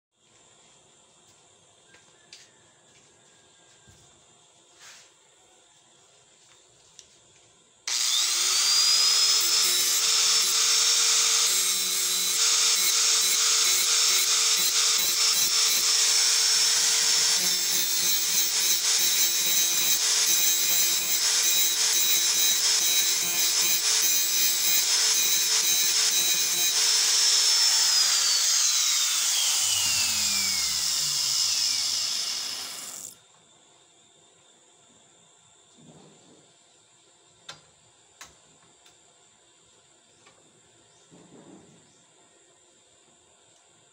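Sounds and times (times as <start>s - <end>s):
angle grinder whine: 7.9s - 33.2s
grinder grinding steel: 7.9s - 33.2s.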